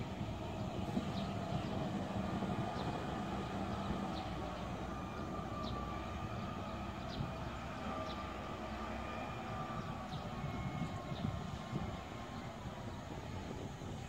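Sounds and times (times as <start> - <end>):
distant engine and hydraulics humming: 0.0 - 14.0.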